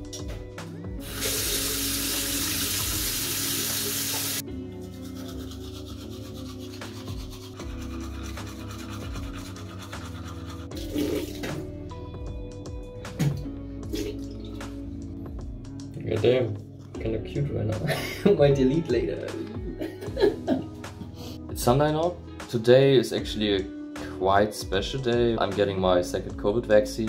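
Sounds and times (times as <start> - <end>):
background music: 0.0 - 27.0
running water rushing: 1.0 - 4.4
toothbrush scrubbing teeth: 4.3 - 11.5.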